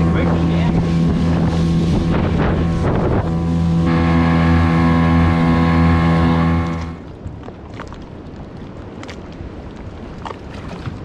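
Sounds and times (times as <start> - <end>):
outboard motor running: 0.0 - 8.3
water splashing: 0.0 - 11.0
wind on microphone: 0.0 - 11.0.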